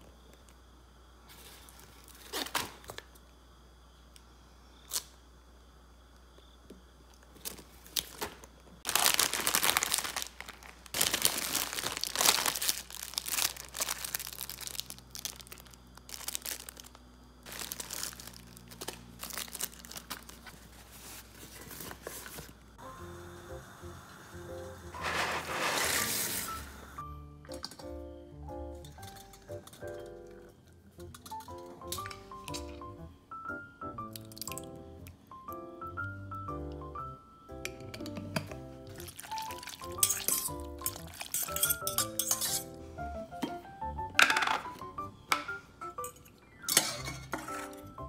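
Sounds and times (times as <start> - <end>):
plastic packaging crinkling: 7.4 - 22.6, 39.0 - 42.5.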